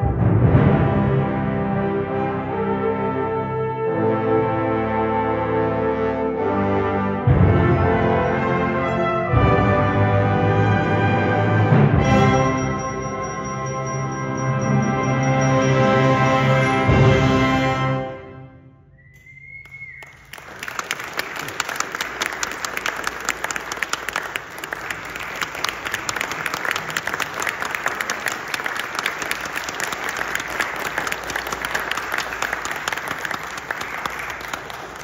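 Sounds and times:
brief high whistle: 0:18.9 - 0:20.3
audience applause: 0:19.6 - 0:35.0.

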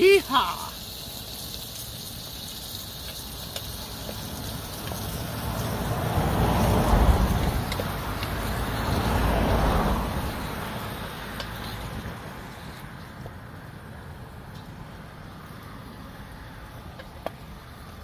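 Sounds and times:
low traffic hum: 0:00.0 - 0:18.0
vehicle rumbling past: 0:04.0 - 0:18.0.

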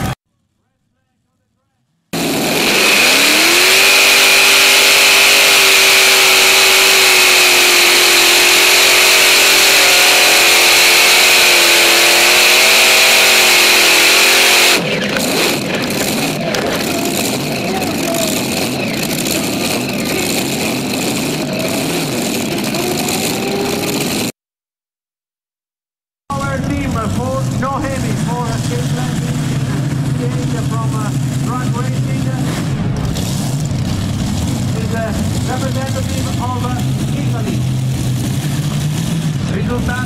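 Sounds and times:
tractor engines at full throttle: 0:02.2 - 0:24.4, 0:26.3 - 0:40.0.

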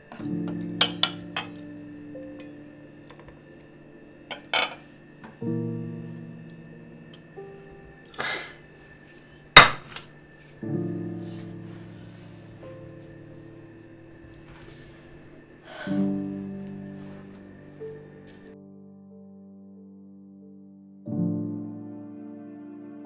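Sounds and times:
slow sustained music chords: 0:00.0 - 0:23.0
metal spoon scraping steel pots: 0:04.3 - 0:04.8
sharp metal clang: 0:04.3 - 0:04.8.

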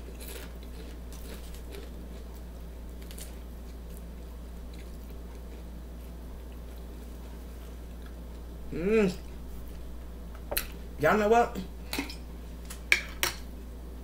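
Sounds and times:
chewing food: 0:00.0 - 0:08.5
low electrical hum: 0:00.0 - 0:14.0.

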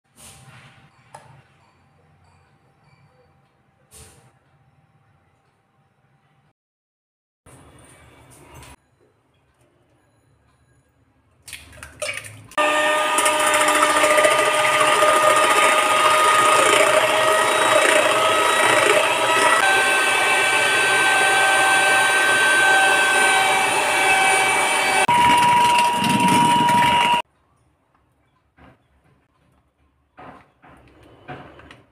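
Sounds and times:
electric hand mixer beating eggs: 0:12.6 - 0:27.2.

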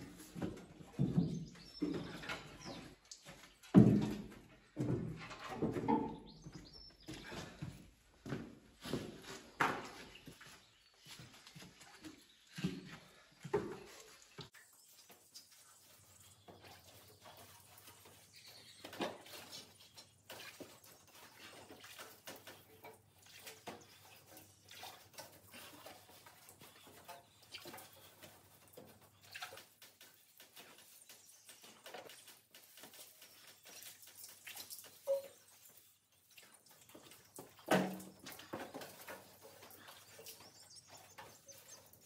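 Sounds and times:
scrubbing and scraping on metal: 0:15.1 - 0:42.0.

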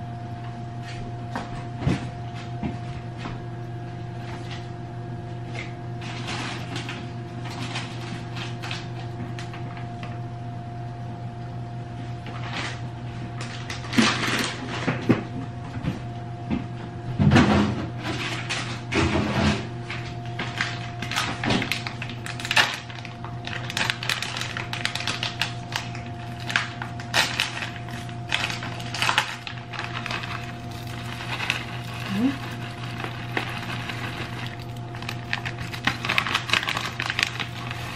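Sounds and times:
steady low hum: 0:00.0 - 0:37.9
plastic packaging rustling: 0:06.0 - 0:09.8, 0:20.3 - 0:37.9.

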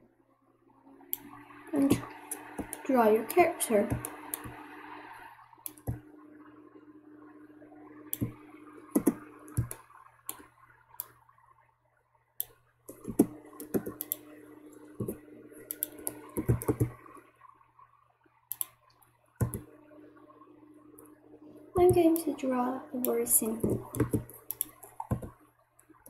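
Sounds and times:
faint steady hum: 0:00.0 - 0:26.0
mouse and keyboard clicks: 0:12.4 - 0:14.2, 0:15.0 - 0:17.0, 0:19.4 - 0:19.6, 0:23.0 - 0:25.3.

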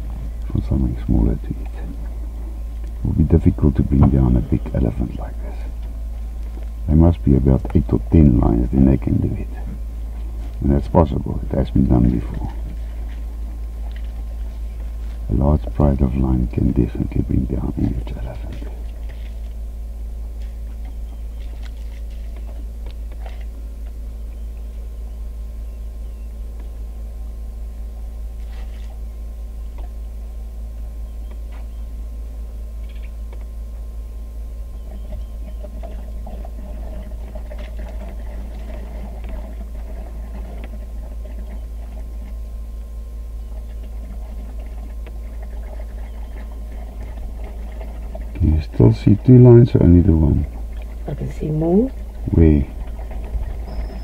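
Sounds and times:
vehicle engine idling: 0:00.0 - 0:54.0
faint high-pitched chirps: 0:53.6 - 0:54.0.

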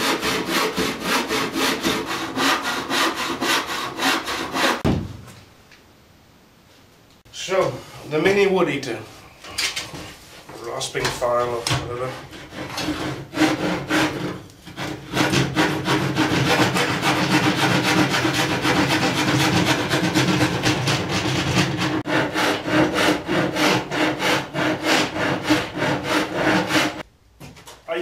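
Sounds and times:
rasp scraping wooden board: 0:00.0 - 0:04.8, 0:11.9 - 0:27.0.

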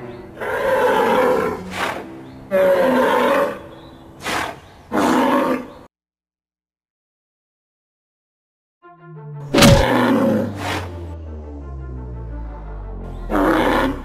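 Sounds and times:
cartoon monster roars: 0:09.6 - 0:10.6.

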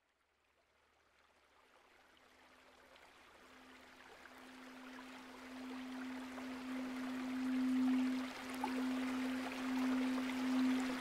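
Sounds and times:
rushing river water: 0:02.3 - 0:11.0
singing bowl hum: 0:03.4 - 0:11.0.

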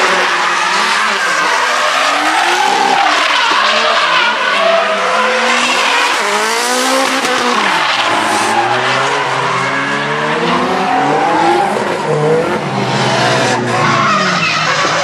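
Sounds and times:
car engines revving: 0:00.0 - 0:15.0.

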